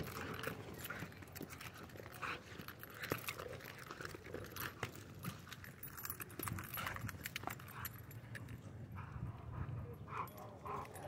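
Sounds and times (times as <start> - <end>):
dog panting: 0.0 - 4.9, 8.9 - 11.0.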